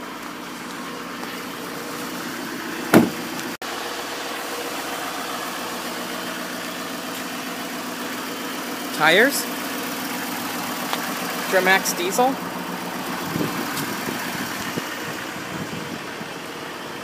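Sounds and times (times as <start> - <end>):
diesel truck engine idling: 0.0 - 17.0
truck door shutting: 2.8 - 3.6.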